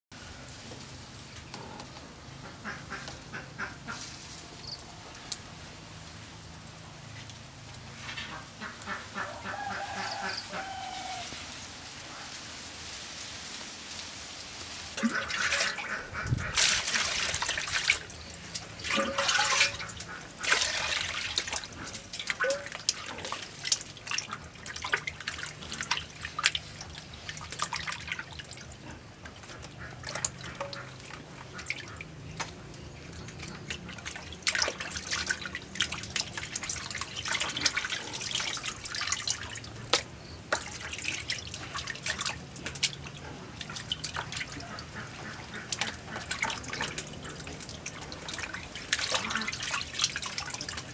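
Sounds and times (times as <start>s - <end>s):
water splashing in a plastic basin: 15.0s - 50.9s.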